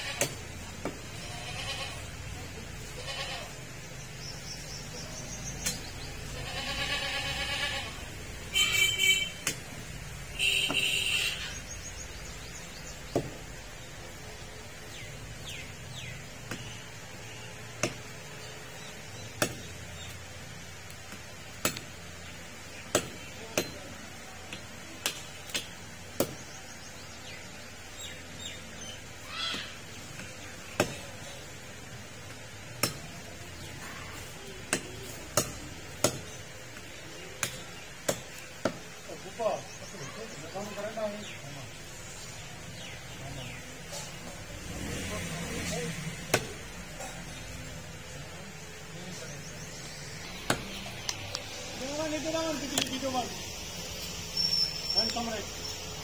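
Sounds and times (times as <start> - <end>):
goat bleating loudly: 0.0 - 0.2, 1.1 - 2.1, 2.8 - 3.6, 6.3 - 8.1
cleaver chopping on wooden block: 13.1 - 13.4, 16.4 - 16.8, 17.8 - 18.2, 19.3 - 19.7, 21.1 - 21.9, 22.9 - 23.8, 29.5 - 31.1, 32.7 - 33.2, 34.7 - 36.4, 37.4 - 38.9, 46.3 - 46.6, 50.3 - 51.2.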